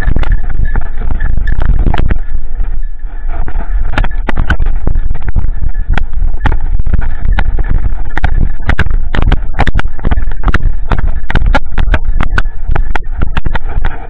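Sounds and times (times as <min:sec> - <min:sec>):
knocks and scrapes: 0:00.0 - 0:14.0
camera handling rumble: 0:03.3 - 0:14.0.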